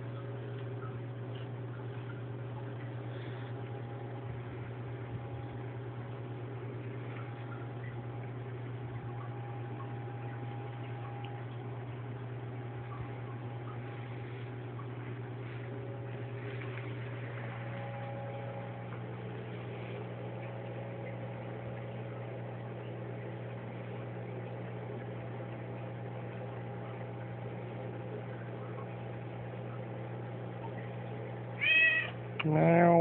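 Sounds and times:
low hum: 0:00.0 - 0:33.0.

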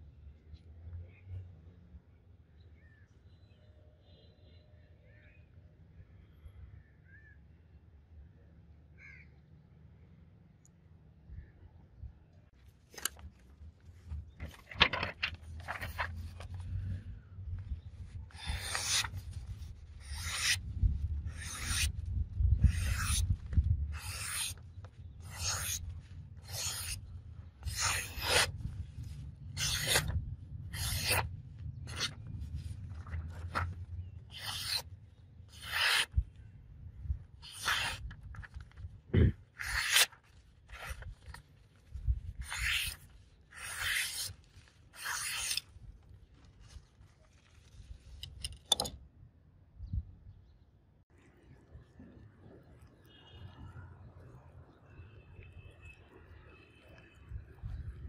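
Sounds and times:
knife slicing paper: 0:18.2 - 0:22.0, 0:22.6 - 0:24.6, 0:25.2 - 0:28.7, 0:29.4 - 0:34.9, 0:35.5 - 0:36.2, 0:37.4 - 0:38.7, 0:39.4 - 0:41.6, 0:42.4 - 0:45.8.

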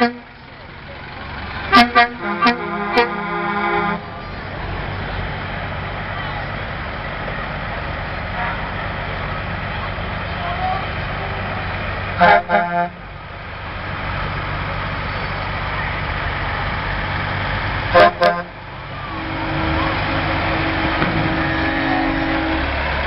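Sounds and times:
truck horn toots: 0:00.0 - 0:00.4, 0:01.6 - 0:04.3, 0:08.3 - 0:08.8, 0:12.1 - 0:13.1, 0:17.9 - 0:23.0
truck engine drone: 0:00.0 - 0:23.0
trucks rolling past: 0:00.0 - 0:23.0.

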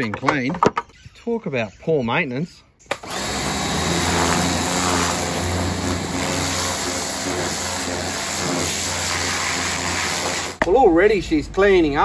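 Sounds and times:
pressure washer motor hum: 0:02.9 - 0:10.6
water jet spraying: 0:03.1 - 0:10.6.

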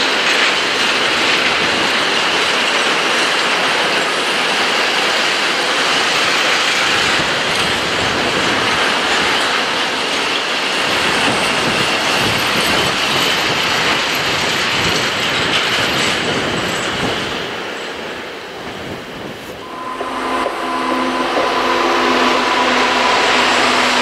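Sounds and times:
freight train rumble: 0:00.0 - 0:24.0.

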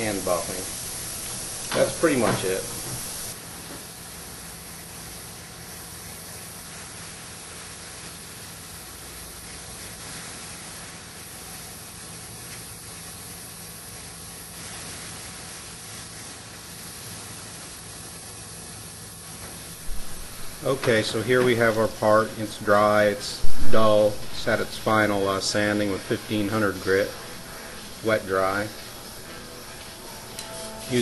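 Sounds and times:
steady hiss: 0:00.0 - 0:31.0.

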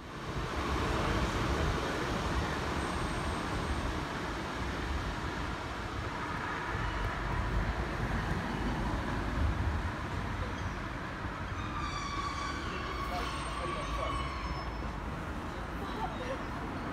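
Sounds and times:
train rumble: 0:00.0 - 0:16.9
multi-pitch train whine: 0:11.3 - 0:15.5.

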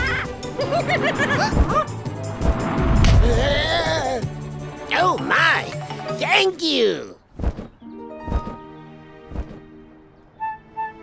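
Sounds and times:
cartoon background music: 0:00.0 - 0:07.2, 0:07.8 - 0:11.0.

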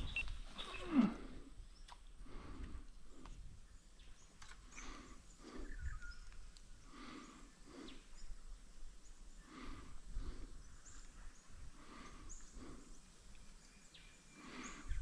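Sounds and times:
faint bird chirps: 0:00.0 - 0:02.0, 0:03.6 - 0:08.4, 0:10.5 - 0:15.0
person breathing heavily: 0:02.2 - 0:03.5, 0:04.6 - 0:06.0, 0:06.8 - 0:08.3, 0:09.3 - 0:10.9, 0:11.6 - 0:13.2, 0:14.3 - 0:15.0.

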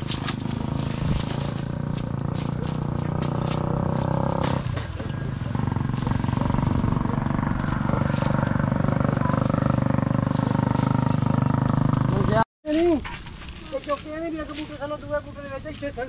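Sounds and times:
leaves and twigs snapping: 0:00.0 - 0:05.2
small engine running: 0:00.0 - 0:12.4.

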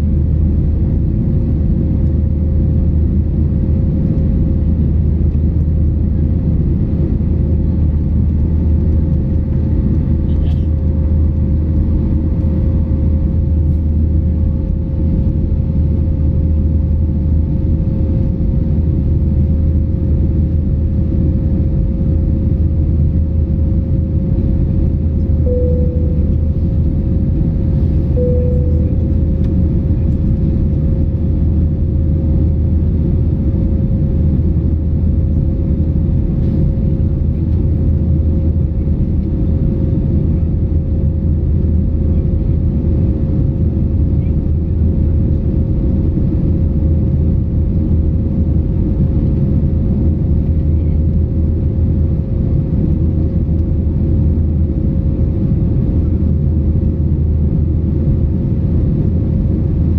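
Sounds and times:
airplane cabin engine drone: 0:00.0 - 0:59.9
low hum: 0:00.0 - 0:59.9
thin steady tone: 0:25.4 - 0:27.0, 0:28.2 - 0:29.3
short cabin tones: 0:25.5 - 0:26.9, 0:28.1 - 0:29.6.

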